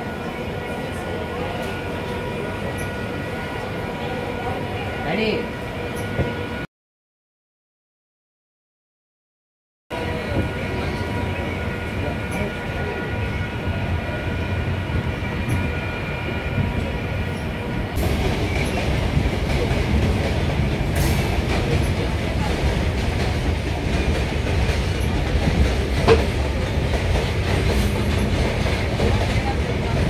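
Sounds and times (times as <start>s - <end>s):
train wheels rumbling on rails: 9.9s - 30.0s.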